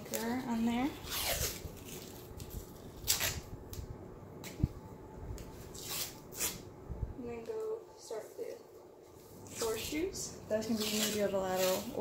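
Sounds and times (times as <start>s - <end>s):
tape ripping: 1.0s - 3.8s, 5.7s - 6.6s, 10.7s - 12.0s.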